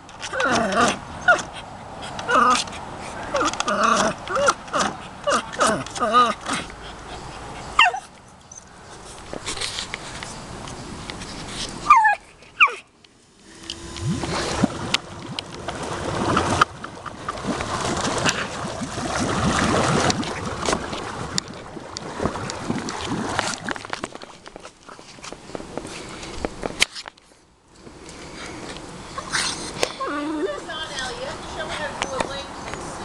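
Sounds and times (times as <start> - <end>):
water churning and splashing: 0.0 - 8.0, 9.0 - 26.3
hot tub jets humming: 0.0 - 9.5, 10.4 - 26.8, 27.5 - 33.0
dog whining: 7.7 - 8.1, 11.8 - 12.9.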